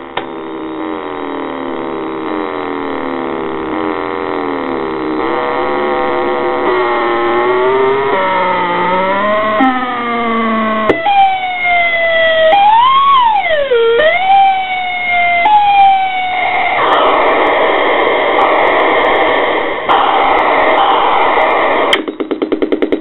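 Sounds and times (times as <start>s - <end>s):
fast pulsing stutter: 0.0s - 10.9s, 16.7s - 23.0s
gritty noisy synth drone: 0.0s - 22.0s
synthesizer tone sliding in pitch: 0.4s - 14.8s.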